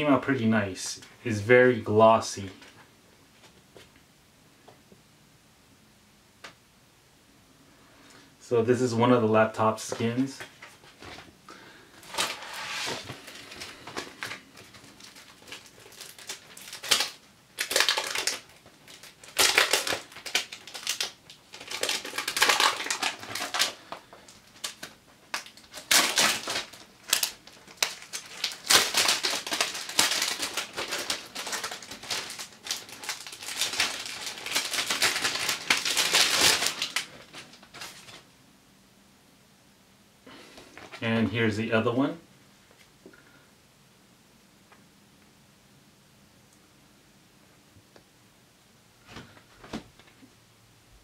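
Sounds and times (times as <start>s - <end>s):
plastic packaging crinkling: 9.9s - 38.3s.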